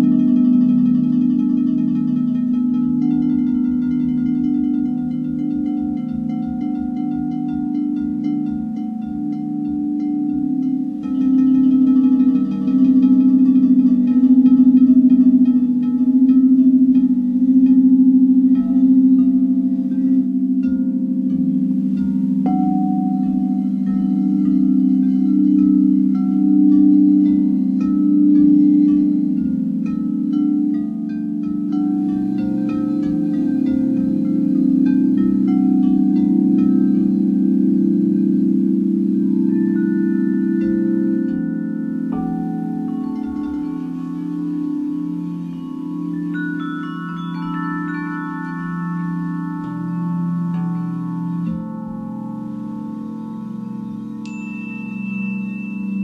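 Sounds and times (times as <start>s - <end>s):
crystal singing bowls humming: 0.0s - 56.0s
metal wind chimes: 0.0s - 56.0s.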